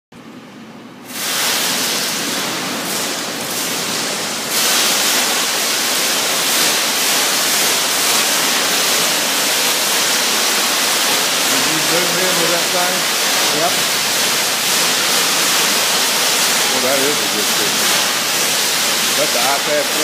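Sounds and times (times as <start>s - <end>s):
water jets spraying: 1.1s - 20.0s.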